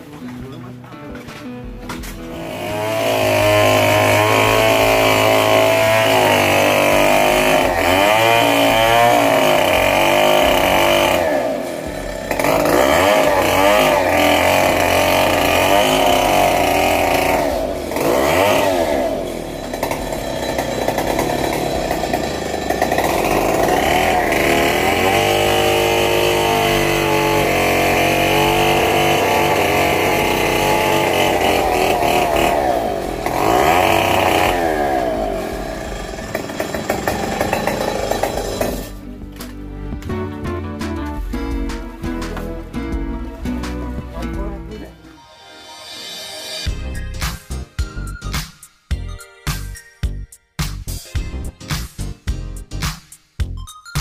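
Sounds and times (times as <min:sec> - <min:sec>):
chainsaw cutting branches: 0:02.0 - 0:39.0.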